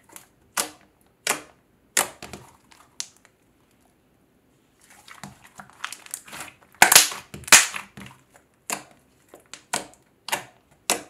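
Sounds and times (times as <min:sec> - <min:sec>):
slime crackling and popping: 0:05.2 - 0:08.0.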